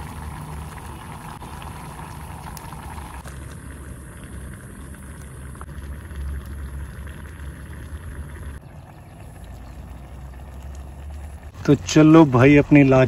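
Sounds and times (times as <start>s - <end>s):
noodles simmering in a pot: 0.0s - 13.0s
wood fire: 0.0s - 13.0s.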